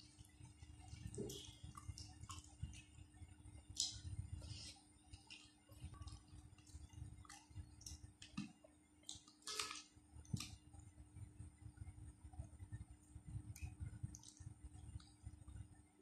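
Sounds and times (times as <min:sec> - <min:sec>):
soft chewing: 0:00.0 - 0:10.9, 0:12.4 - 0:15.6
fingers squishing wet rice: 0:00.1 - 0:10.6.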